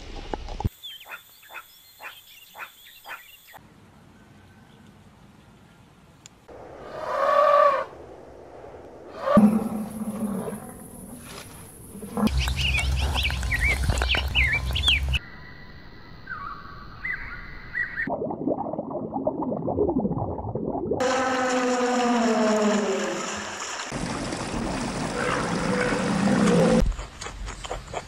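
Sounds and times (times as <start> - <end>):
long falling animal call: 6.8 - 8.0, 21.0 - 23.6.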